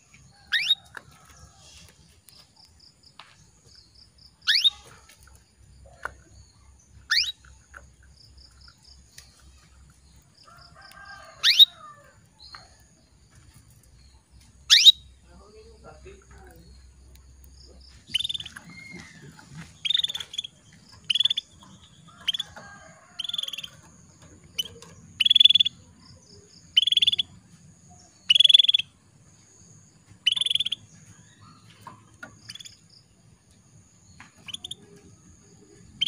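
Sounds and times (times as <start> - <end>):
canary calling: 0.4 - 0.9, 4.4 - 5.2, 7.0 - 7.6, 10.7 - 12.0, 14.6 - 16.9, 17.6 - 23.8, 24.5 - 25.8, 26.7 - 27.3, 28.2 - 28.9, 30.2 - 32.8, 34.4 - 35.0.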